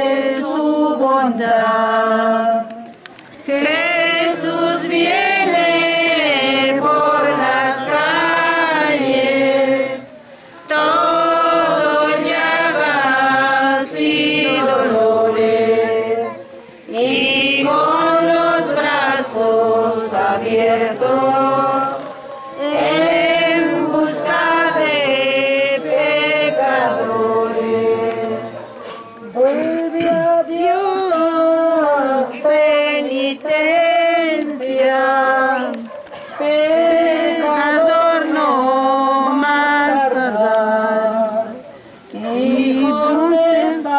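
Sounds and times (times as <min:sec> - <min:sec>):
group singing a hymn: 0:00.0 - 0:43.9.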